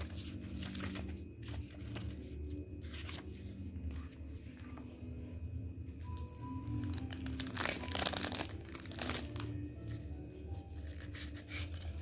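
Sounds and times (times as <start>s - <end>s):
paper and packaging crinkling: 0.0s - 4.1s, 6.1s - 10.0s
soft background music: 0.0s - 12.0s.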